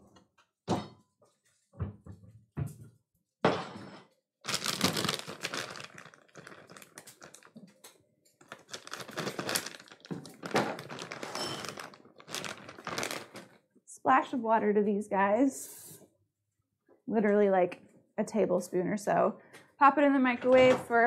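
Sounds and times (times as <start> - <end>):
plastic bag crinkling: 4.4 - 7.8, 8.4 - 13.6.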